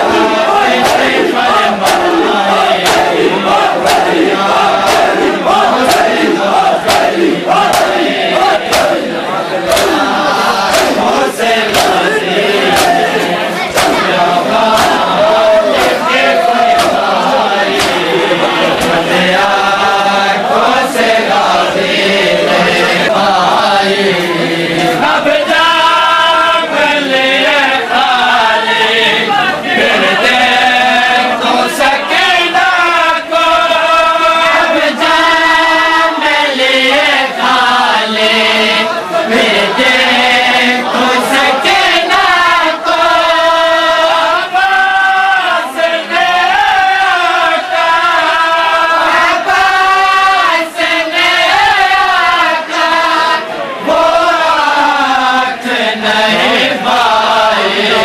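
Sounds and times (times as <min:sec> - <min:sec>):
men chanting in unison: 0:00.0 - 0:58.0
sharp slaps on chest: 0:00.7 - 0:01.2, 0:01.8 - 0:02.2, 0:02.8 - 0:03.2, 0:03.8 - 0:04.2, 0:04.8 - 0:09.0, 0:09.7 - 0:10.1, 0:10.7 - 0:11.1, 0:11.7 - 0:12.1, 0:12.7 - 0:14.1, 0:14.7 - 0:15.1, 0:16.7 - 0:17.1, 0:17.7 - 0:18.1.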